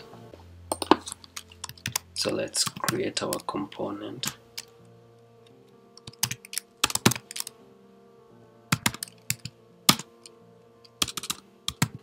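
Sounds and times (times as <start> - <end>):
faint background music: 0.0 - 12.0
keyboard typing: 1.3 - 3.5, 6.0 - 7.5, 8.7 - 10.3, 11.0 - 12.0.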